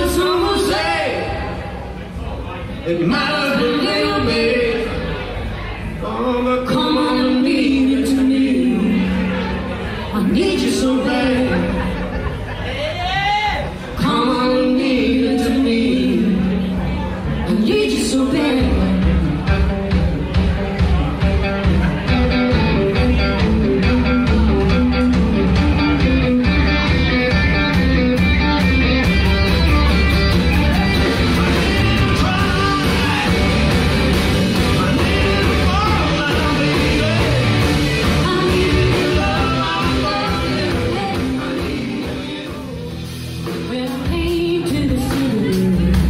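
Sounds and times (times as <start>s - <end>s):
blues-rock band playing: 0.0s - 13.0s, 13.6s - 46.0s
man singing: 2.8s - 5.2s, 6.0s - 9.3s, 30.7s - 43.0s.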